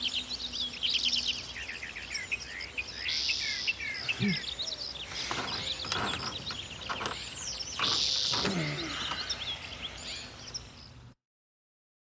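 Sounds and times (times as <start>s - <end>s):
birds chirping and singing: 0.0s - 11.2s.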